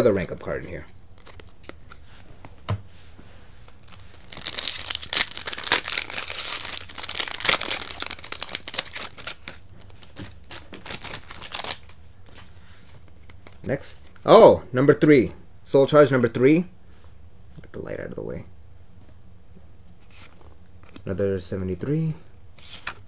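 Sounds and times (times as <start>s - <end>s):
foil wrapper tearing and crinkling: 3.8s - 12.0s.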